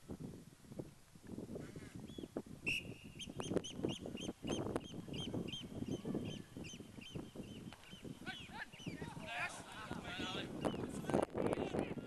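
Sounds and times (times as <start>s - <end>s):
bird calling: 2.0s - 9.1s.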